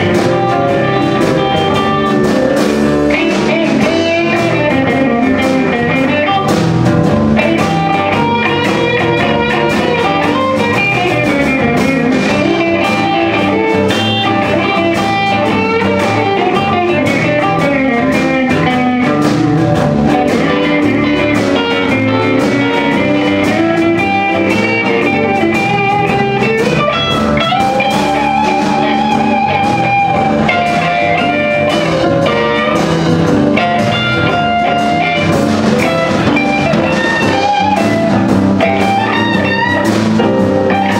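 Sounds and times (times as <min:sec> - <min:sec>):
bass: 0:00.0 - 0:40.9
drum kit: 0:00.0 - 0:40.9
electric guitar lines: 0:00.0 - 0:40.9
keyboard: 0:00.0 - 0:40.9.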